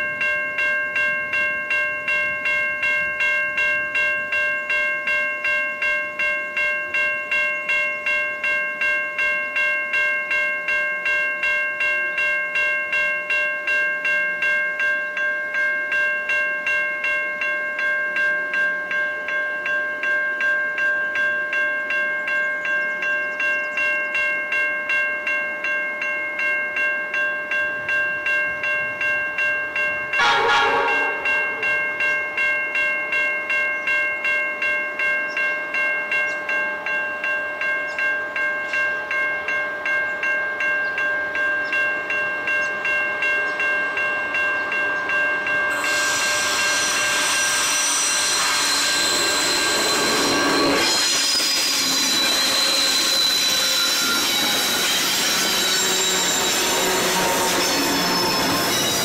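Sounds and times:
level crossing bell ringing: 0.0s - 47.0s.

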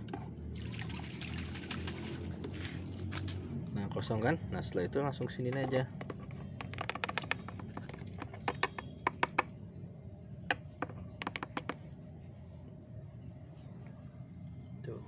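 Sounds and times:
fish net knocking plastic bucket: 5.6s - 9.5s, 10.5s - 11.8s.

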